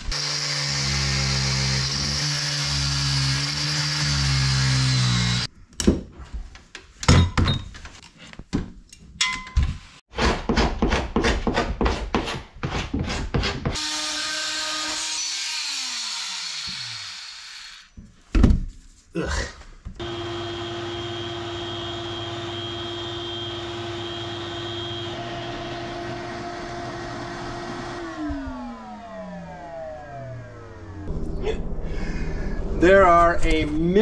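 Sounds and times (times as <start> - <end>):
angle grinder cutting steel: 0.0 - 5.5, 13.8 - 17.9
cordless power tool winding down: 20.0 - 31.1.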